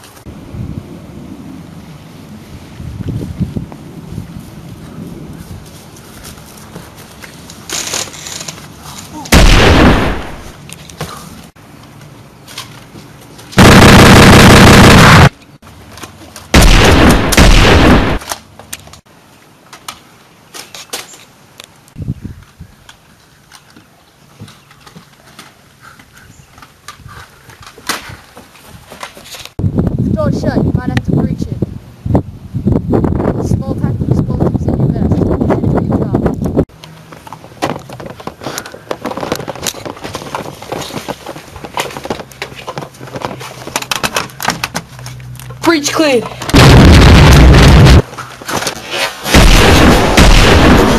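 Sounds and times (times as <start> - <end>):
footsteps on gravel path: 3.0 - 9.2, 23.8 - 29.6, 37.0 - 45.6
gunfire burst: 9.3 - 10.5, 13.6 - 15.3, 16.6 - 18.2, 46.6 - 48.0, 49.3 - 50.9.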